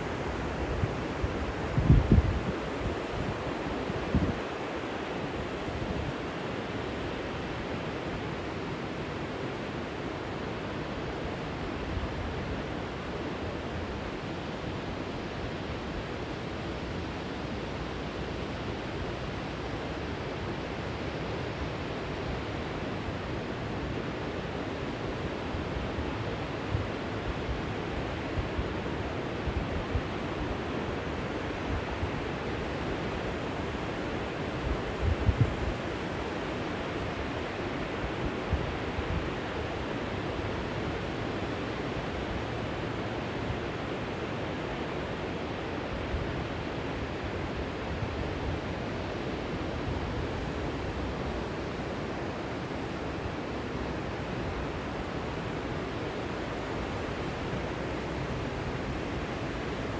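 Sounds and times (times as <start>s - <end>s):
wind buffets on microphone: 0.0s - 4.6s, 25.6s - 41.0s
river water pouring over weir: 0.0s - 59.9s.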